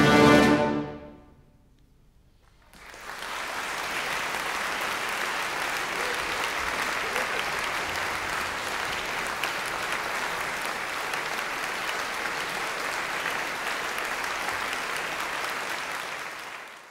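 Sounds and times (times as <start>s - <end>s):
large audience applauding: 2.4s - 16.9s.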